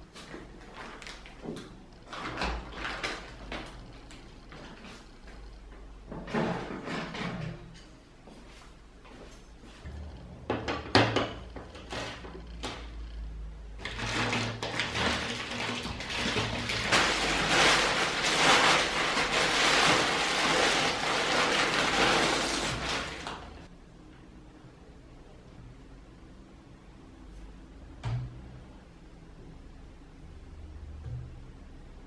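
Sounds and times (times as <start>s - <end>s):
plastic bag crinkling: 0.6s - 1.4s, 2.1s - 4.8s, 13.8s - 23.7s.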